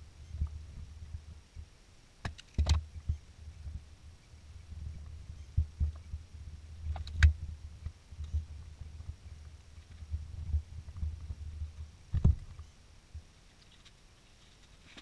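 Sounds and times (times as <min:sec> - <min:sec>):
low uneven rumble: 0:02.9 - 0:13.5.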